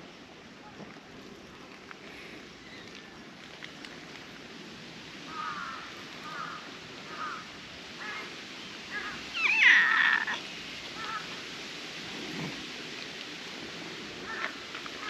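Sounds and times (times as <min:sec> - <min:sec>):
cat meowing: 0:09.4 - 0:10.4.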